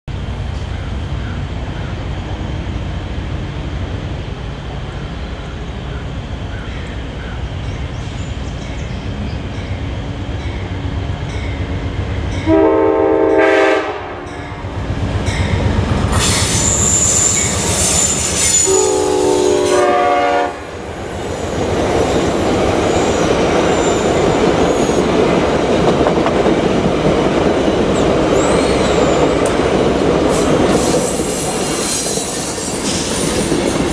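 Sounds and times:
rush of passing train cars: 0.1 - 33.9
train horn blasts: 12.4 - 14.6, 18.3 - 20.7
high wheel squeal: 16.1 - 19.1, 28.3 - 29.3, 30.3 - 33.9.

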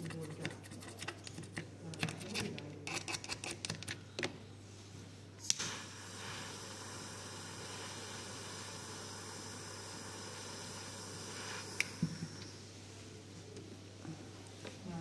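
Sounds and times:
torch clicking alight: 5.4 - 5.8
hissing flame: 5.5 - 12.6.

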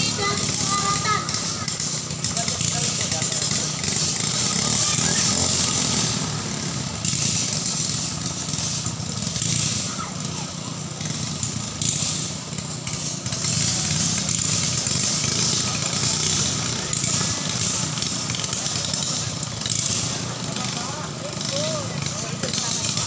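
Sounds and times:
longtail boat engines buzzing: 0.0 - 23.0.

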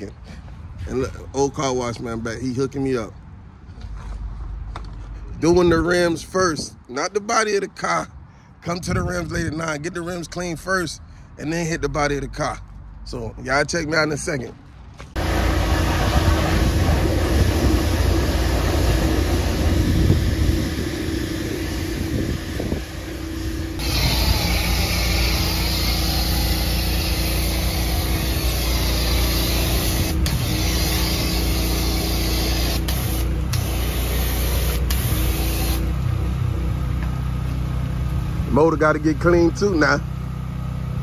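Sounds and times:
low motor hum: 15.1 - 41.0
pressure washer spraying: 15.2 - 36.0.

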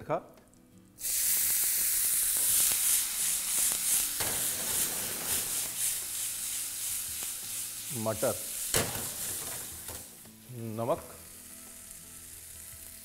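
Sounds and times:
seeds sizzling in hot oil: 1.0 - 13.0.

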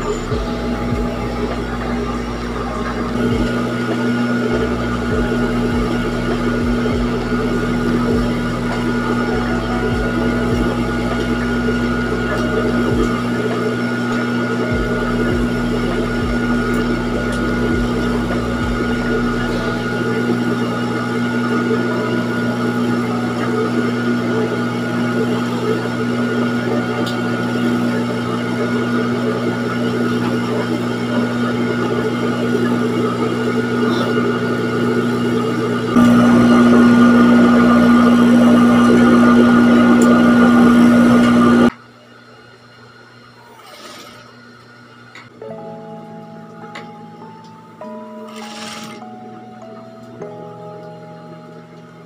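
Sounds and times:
sewing machine motor humming: 43.5 - 44.4, 48.3 - 49.0.

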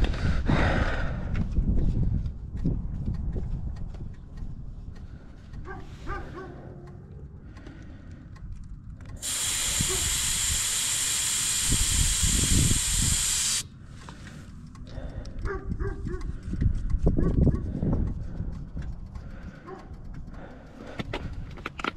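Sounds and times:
air hissing from tire valve: 9.2 - 14.2.

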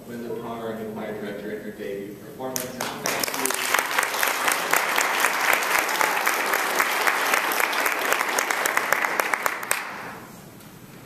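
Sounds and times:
congregation applauding: 2.6 - 10.3.

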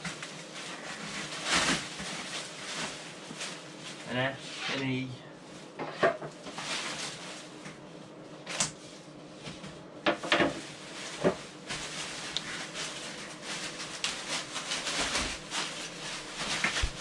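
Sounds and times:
plastic packaging crinkling: 0.0 - 4.2, 6.4 - 7.6, 10.2 - 17.0.

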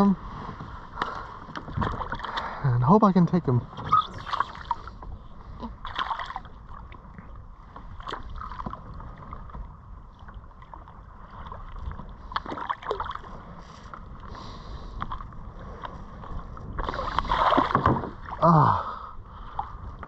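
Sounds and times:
water lapping against kayak hull: 0.0 - 20.0
small splashes and knocks: 1.5 - 2.5, 9.4 - 13.3, 16.8 - 18.5.

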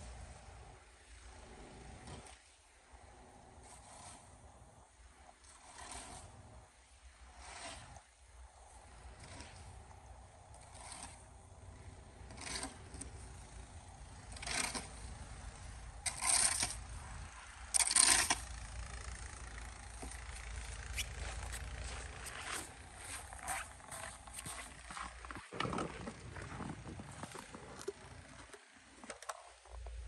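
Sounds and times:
snow shovel scraping concrete: 3.6 - 4.4, 5.4 - 6.4, 7.2 - 8.1, 9.2 - 9.8, 10.6 - 11.3, 12.1 - 28.4.

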